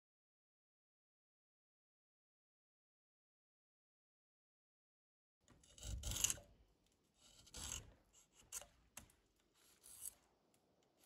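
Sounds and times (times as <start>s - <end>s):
drawknife scraping wood: 5.5s - 6.6s, 7.2s - 11.0s.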